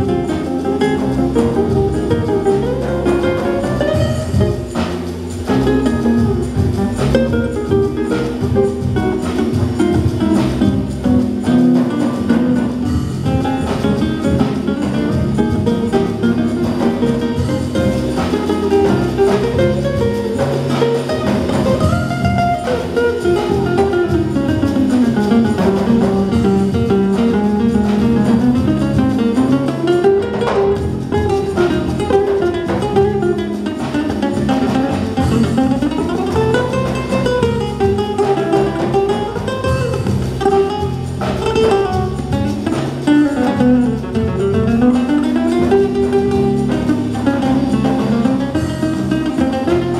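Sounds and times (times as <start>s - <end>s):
fingerstyle acoustic guitar: 0.0s - 49.9s
latin jazz band music: 0.0s - 49.9s.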